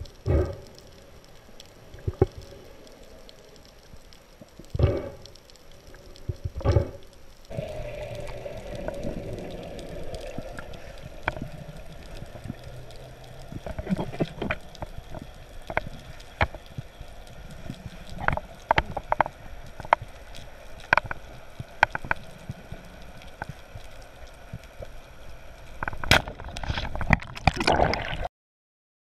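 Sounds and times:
underwater gurgling and bubbling: 0.0s - 28.3s
steady low hum: 6.7s - 21.0s.

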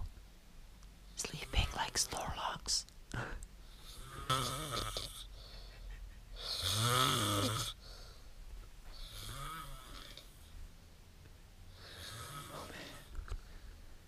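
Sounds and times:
person snoring: 3.7s - 5.6s, 6.4s - 7.8s, 9.0s - 10.4s, 11.8s - 13.1s.

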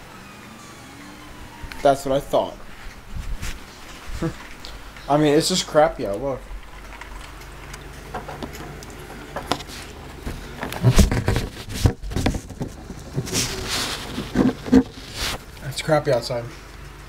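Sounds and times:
short rustle: 2.6s - 4.8s, 9.6s - 15.6s
heavy thumps: 9.4s - 15.2s
taps and scrapes on window blinds: 10.7s - 15.5s.

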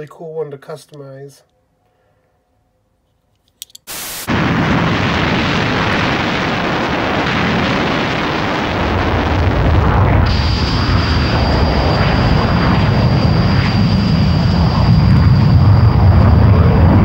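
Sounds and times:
tv static hiss: 3.9s - 4.6s, 5.6s - 10.8s
jet engines roaring: 4.0s - 17.0s.

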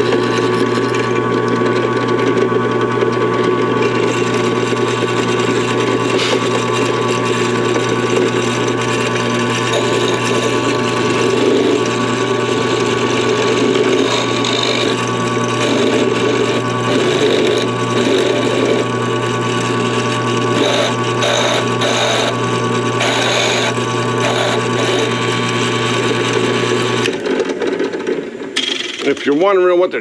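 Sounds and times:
motor hum: 0.0s - 30.0s.

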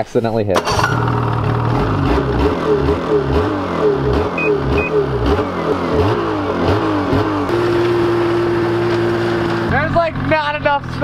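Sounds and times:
snowmobile engine revving: 0.6s - 11.0s
short high beeps: 4.4s - 5.0s.

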